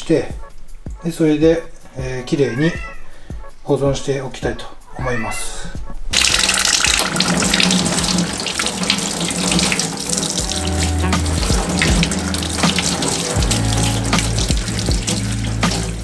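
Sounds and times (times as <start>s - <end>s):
tap water splashing: 6.2s - 16.0s.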